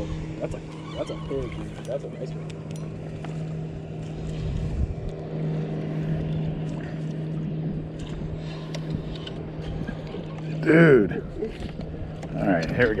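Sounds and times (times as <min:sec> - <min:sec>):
boat motor humming: 0:00.0 - 0:13.0
water noise: 0:00.0 - 0:13.0
wind noise on microphone: 0:04.2 - 0:05.2, 0:07.6 - 0:12.4.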